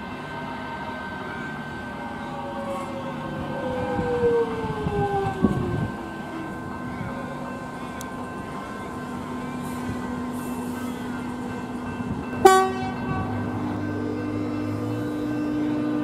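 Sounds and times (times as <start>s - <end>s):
train electrical hum: 0.0s - 16.0s
train horn toot: 12.4s - 16.0s.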